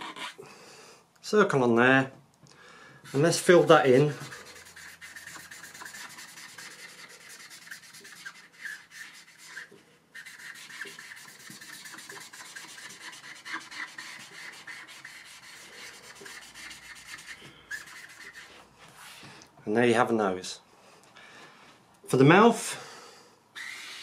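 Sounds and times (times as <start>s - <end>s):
marker scribbling on paper: 0.0s - 0.4s, 3.0s - 19.2s.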